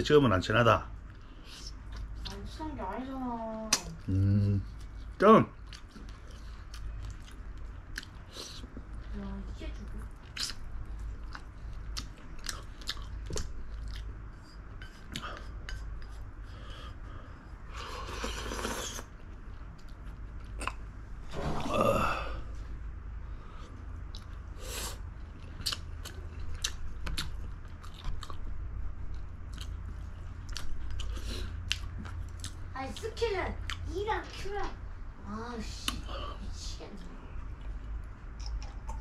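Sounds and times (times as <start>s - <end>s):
close chewing and biting: 3.7s - 9.1s, 9.9s - 16.5s, 25.1s - 33.0s.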